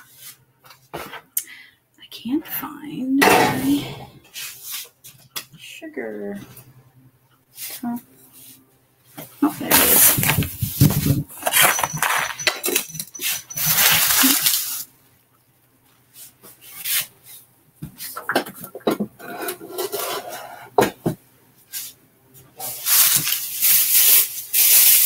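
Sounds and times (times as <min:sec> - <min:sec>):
scraping and rustling: 0:09.3 - 0:14.9.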